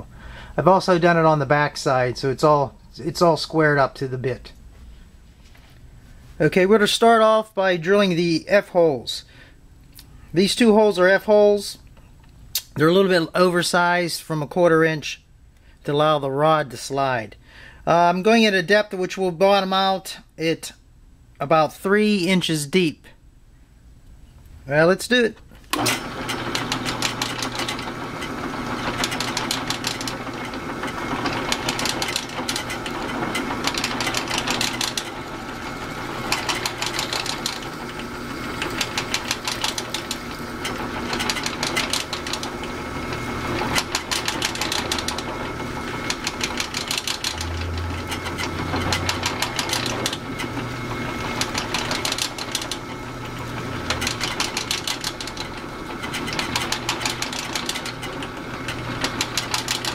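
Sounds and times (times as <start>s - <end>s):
drill press motor hum: 25.6s - 59.9s
drill bit boring into plastic: 25.7s - 59.9s.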